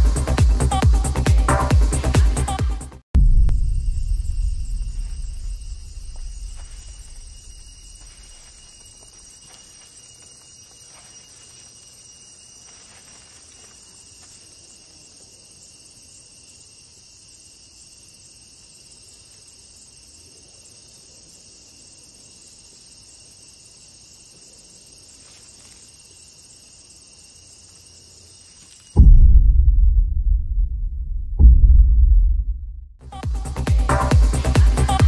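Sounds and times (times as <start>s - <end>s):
insects chorus: 3.5s - 29.1s, 33.0s - 35.0s.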